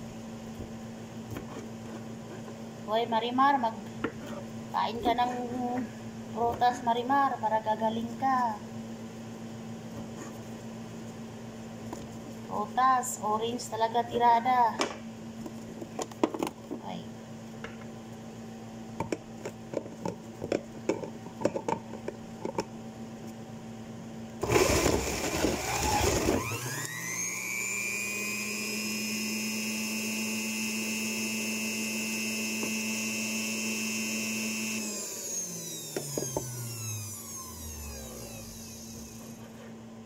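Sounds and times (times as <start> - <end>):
juicer motor grinding and whining: 24.4 - 39.6.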